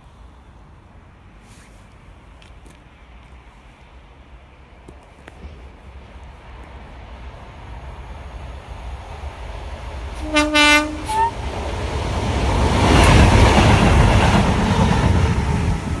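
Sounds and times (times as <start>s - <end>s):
diesel train rumbling past: 0.0s - 16.0s
two-note train horn: 10.2s - 11.4s.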